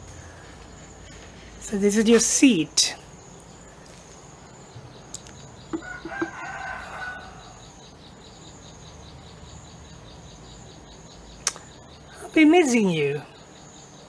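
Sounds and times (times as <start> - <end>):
high insect trill: 0.0 - 14.0
small knocks: 5.2 - 6.5
rooster crowing: 5.7 - 7.7.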